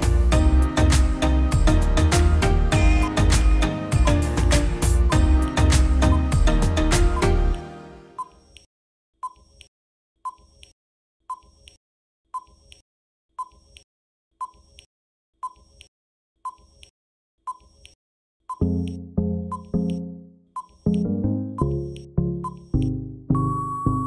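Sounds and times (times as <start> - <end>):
background music: 0.0 - 8.3, 18.6 - 24.0.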